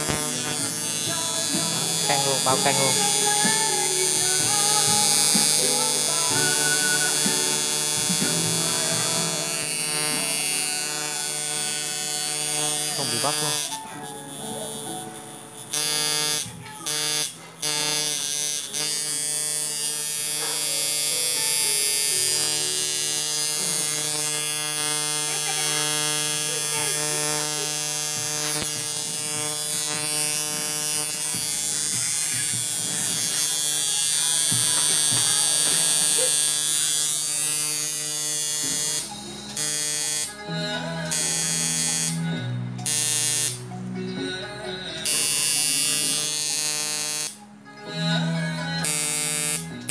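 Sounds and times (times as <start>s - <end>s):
tattoo machine buzzing: 0.0s - 44.3s, 45.0s - 49.9s.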